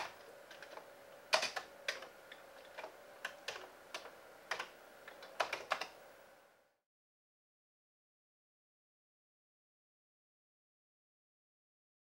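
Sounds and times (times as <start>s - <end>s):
computer keyboard keys clacking: 0.0s - 2.1s, 2.7s - 6.0s
cooling fan hum: 0.0s - 6.8s.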